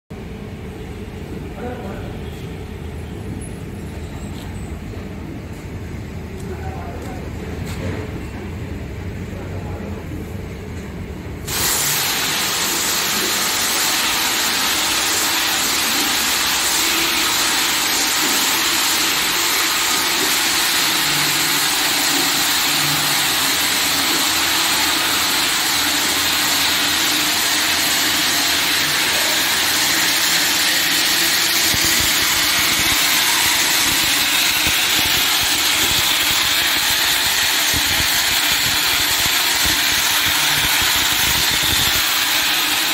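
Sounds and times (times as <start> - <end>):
film and rollers rushing: 11.5 - 42.9.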